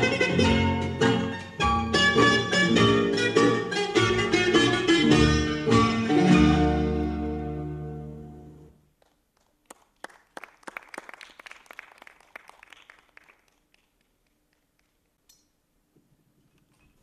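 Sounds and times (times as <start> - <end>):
audience applauding: 9.0 - 15.0.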